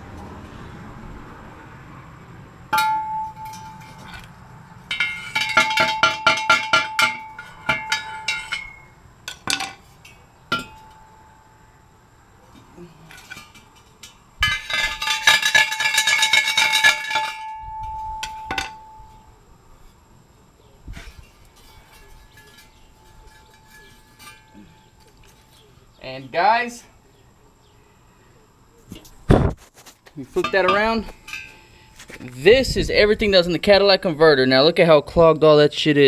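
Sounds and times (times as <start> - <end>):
hollow metal shell clinking: 2.7 - 11.6, 12.5 - 19.4, 21.0 - 25.7, 30.4 - 32.1.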